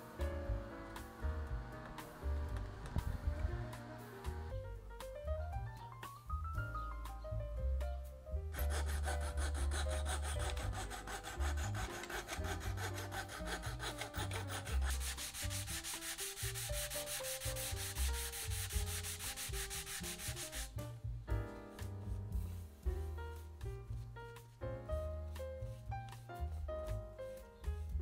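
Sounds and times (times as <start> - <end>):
background music: 0.0 - 28.0
hand saw cutting wood: 8.6 - 20.7.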